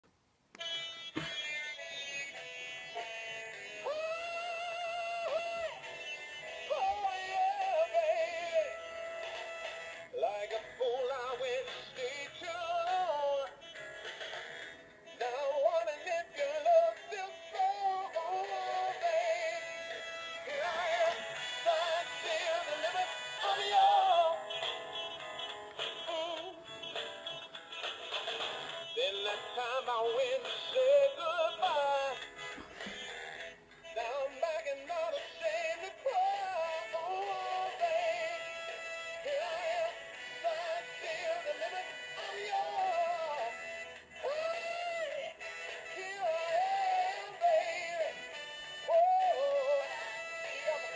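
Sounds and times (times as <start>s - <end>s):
toy speaker playing sung melody: 33.9s - 50.9s.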